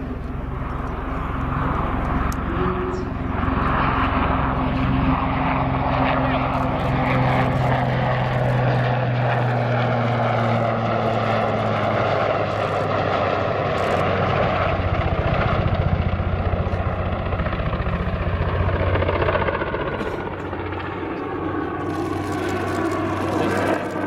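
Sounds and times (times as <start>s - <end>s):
helicopter flying past: 0.0s - 24.0s.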